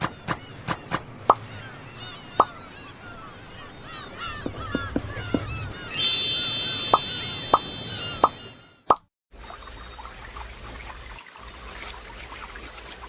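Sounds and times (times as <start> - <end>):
birds chirping: 0.0 - 8.9
cartoon pops dropping in pitch: 8.9 - 9.1.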